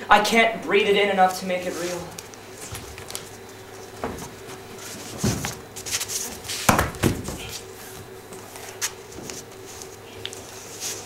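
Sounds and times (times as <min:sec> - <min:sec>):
faint steady hum: 0:00.0 - 0:11.0
bodies thudding on stage floor: 0:04.0 - 0:04.5, 0:06.6 - 0:07.6.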